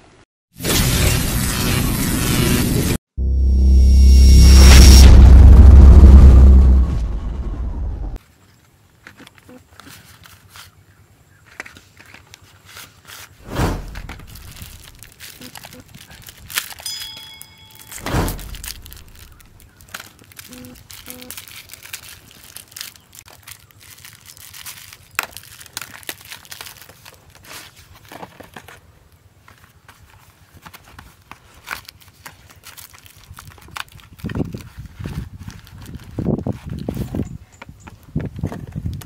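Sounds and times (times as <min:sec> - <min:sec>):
plastic packaging crinkling: 0:11.5 - 0:37.1
heavy thump: 0:18.0 - 0:19.2.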